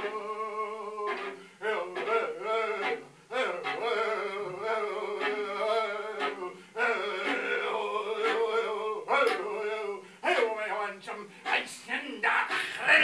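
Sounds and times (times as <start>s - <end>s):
bowed viola tone: 0.0s - 10.0s
man chanting wordless vocals: 0.0s - 13.0s.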